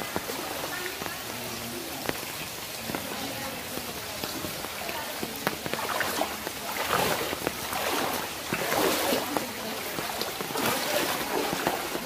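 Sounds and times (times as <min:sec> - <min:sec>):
rain on water: 0:00.0 - 0:12.0
water sloshing from wading: 0:03.0 - 0:12.0.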